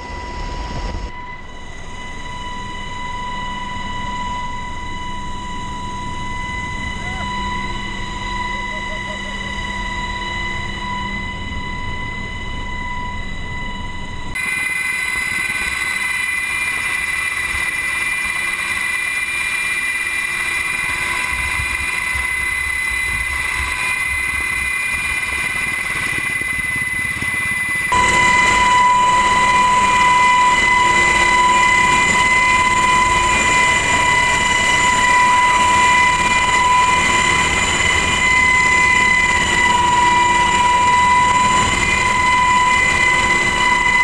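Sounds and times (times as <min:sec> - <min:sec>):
helicopter engine whine: 0:00.0 - 0:44.0
rotor and air noise: 0:14.3 - 0:44.0.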